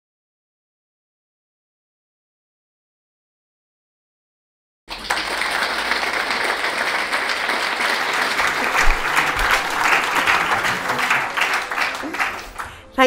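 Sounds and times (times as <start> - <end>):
audience applauding: 4.9 - 13.0.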